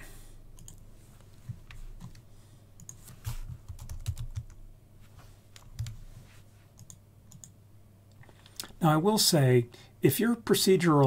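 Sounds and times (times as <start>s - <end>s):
computer keyboard typing: 0.6s - 0.8s, 2.0s - 2.2s, 2.8s - 4.6s, 5.6s - 6.0s, 6.8s - 7.6s.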